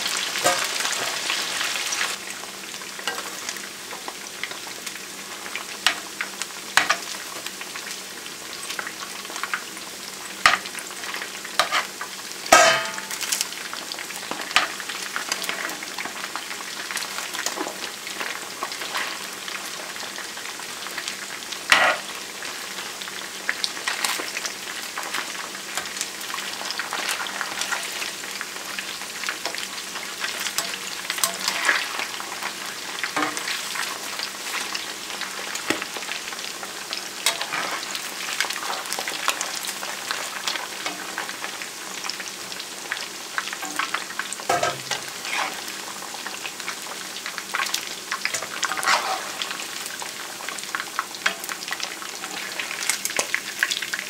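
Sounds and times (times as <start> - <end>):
fish sizzling in oil: 0.0 - 54.0
metal spoon scraping pan: 11.6 - 11.9, 21.7 - 22.0, 30.6 - 31.9, 37.3 - 37.9, 44.5 - 45.7, 48.3 - 49.6.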